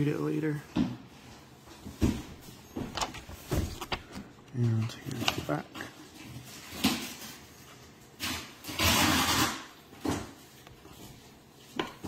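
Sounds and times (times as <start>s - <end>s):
paper rustling: 2.8s - 8.4s.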